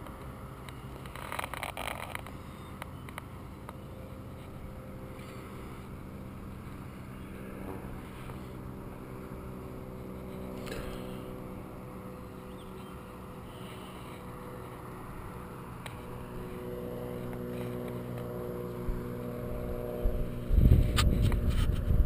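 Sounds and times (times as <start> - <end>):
distant vehicle engines humming: 0.0 - 22.0.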